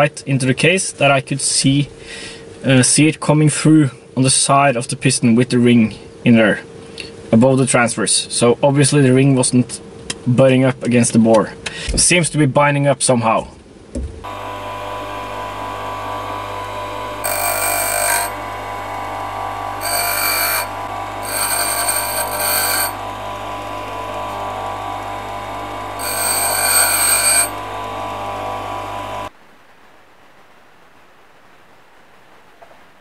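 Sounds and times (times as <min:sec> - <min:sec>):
bench grinder humming: 0:14.3 - 0:29.3
metal ring screeching on grinder: 0:17.2 - 0:18.4, 0:19.7 - 0:23.1, 0:25.9 - 0:27.7.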